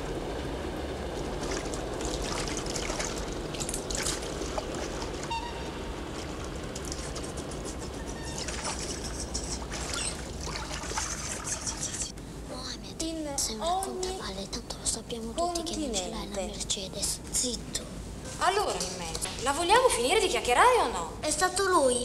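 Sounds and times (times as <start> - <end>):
steady low hum: 0.0 - 22.0
bath water splashing: 1.1 - 12.1.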